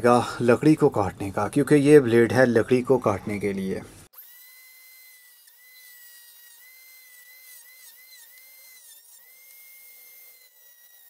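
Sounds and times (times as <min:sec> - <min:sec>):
rotary tool whining: 0:03.9 - 0:11.0.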